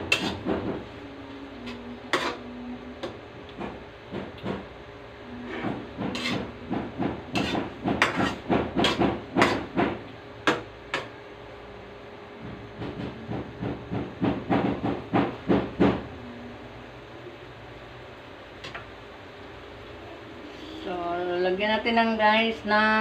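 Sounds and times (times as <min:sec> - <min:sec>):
metal spatula scraping a wok: 0:00.0 - 0:00.5, 0:01.6 - 0:03.2, 0:05.4 - 0:06.6, 0:07.3 - 0:09.7.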